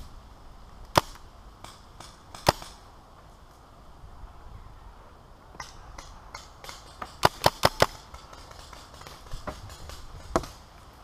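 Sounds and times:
paintball markers firing: 0.9 - 2.8, 5.6 - 10.7.

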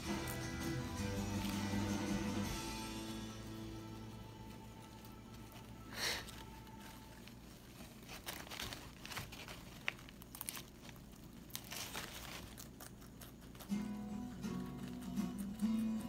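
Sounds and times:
paper bedding crinkling and rustling: 4.7 - 12.8.

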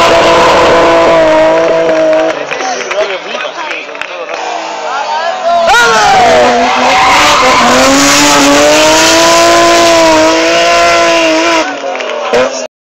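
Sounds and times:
race car engine at high revs: 0.0 - 2.6, 5.6 - 12.7.

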